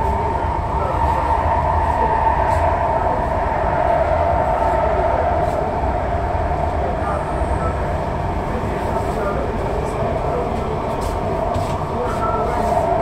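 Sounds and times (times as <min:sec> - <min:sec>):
train rumbling through tunnel: 0:00.0 - 0:13.0.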